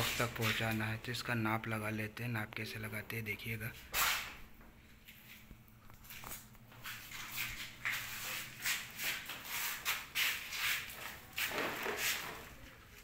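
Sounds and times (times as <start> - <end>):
shuffling footsteps: 3.7 - 13.0
rustling handling noise: 4.8 - 13.0.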